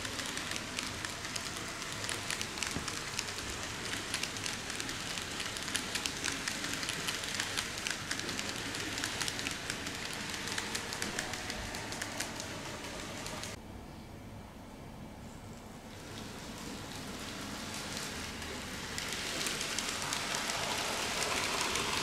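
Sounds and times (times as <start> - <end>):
model train wheels clattering: 0.0 - 13.6, 16.0 - 22.0
steady hiss: 15.8 - 22.0.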